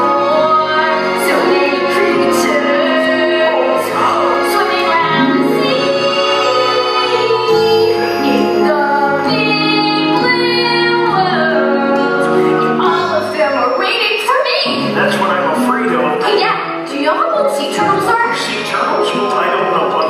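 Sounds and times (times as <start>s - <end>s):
voices singing with instruments: 0.0s - 13.8s.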